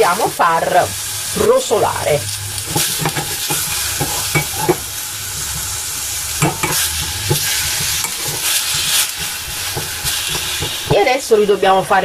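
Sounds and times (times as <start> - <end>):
food sizzling in hot oil: 0.0 - 12.0
tongs clinking against pan: 2.7 - 4.8, 6.4 - 11.0.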